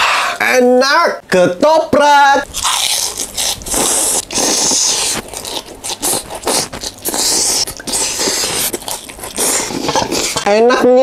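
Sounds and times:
crunching: 0:02.5 - 0:07.6
noodles slurped and chewed: 0:02.5 - 0:10.5
spoon scraping plate: 0:09.6 - 0:10.5.

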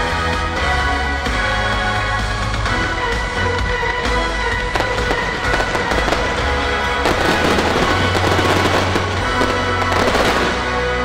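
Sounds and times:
loud show music: 0:00.0 - 0:11.0
fireworks bursting and crackling: 0:03.0 - 0:11.0.

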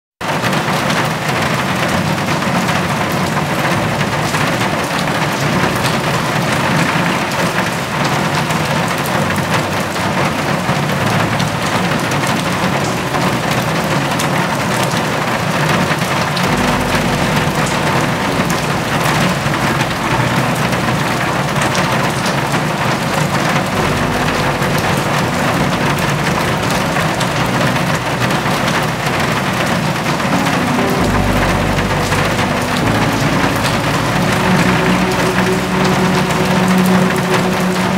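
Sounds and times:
rain on hard surfaces: 0:00.2 - 0:37.9
low rumble: 0:16.3 - 0:37.9.

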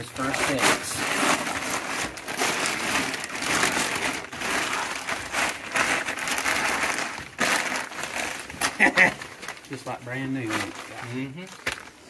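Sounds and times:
plastic sheeting crinkling: 0:00.0 - 0:12.0.

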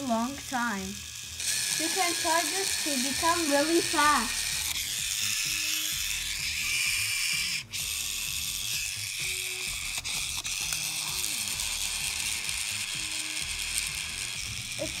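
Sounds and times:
toy charger whirring and ratcheting: 0:00.0 - 0:15.0.

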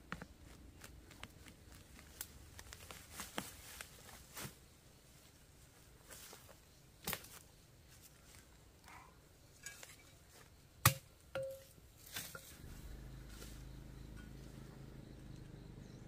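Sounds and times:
hard objects knocking and clinking: 0:10.9 - 0:11.7.

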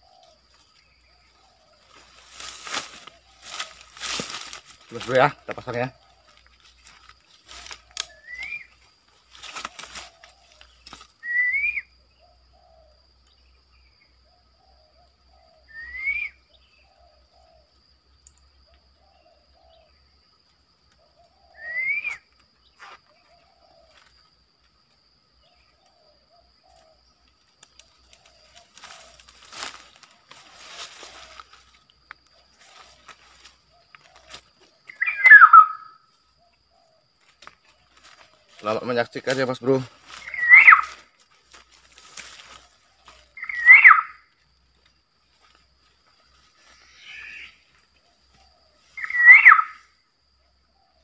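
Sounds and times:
soft chattering bird calls: 0:25.4 - 0:37.0, 0:37.6 - 0:41.1, 0:42.0 - 0:44.3, 0:46.5 - 0:49.8.

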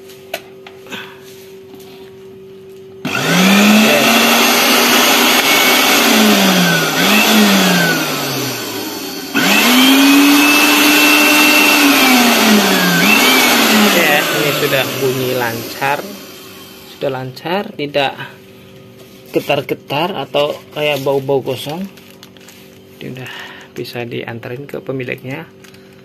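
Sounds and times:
blender motor whining: 0:03.0 - 0:17.1.

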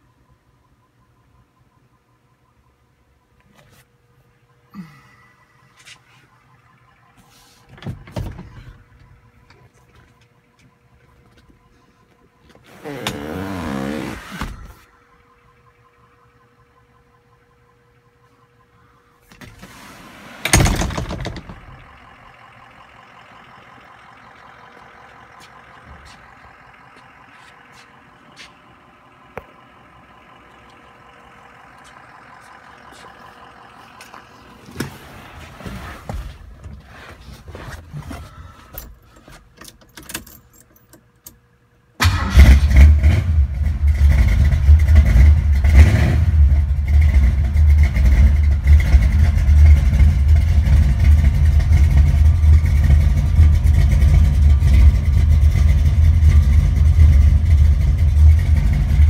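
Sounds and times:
faint steady hum: 0:00.0 - 0:42.7
car engine starting and rumbling: 0:04.7 - 0:59.0.

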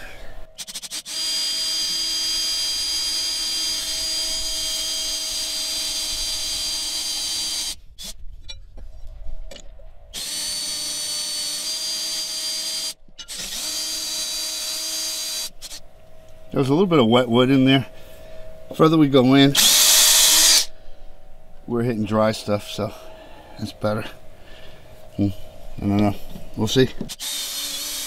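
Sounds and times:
electric drill drilling: 0:00.1 - 0:08.2, 0:10.1 - 0:15.8, 0:19.6 - 0:20.7, 0:27.1 - 0:28.0.

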